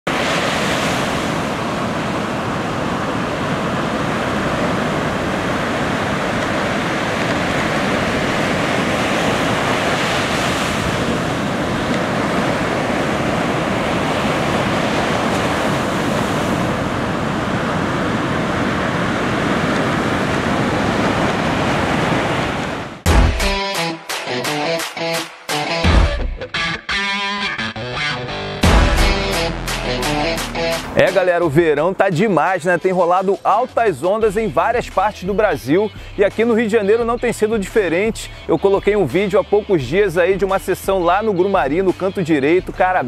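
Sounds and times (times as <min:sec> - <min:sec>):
ocean waves breaking: 0:00.1 - 0:25.8, 0:28.6 - 0:36.7
wind buffeting microphone: 0:01.3 - 0:23.0.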